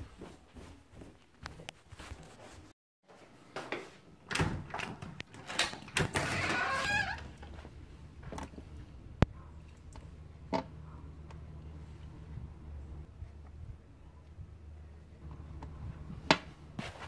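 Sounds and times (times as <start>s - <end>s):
door swinging open: 4.3s - 7.6s.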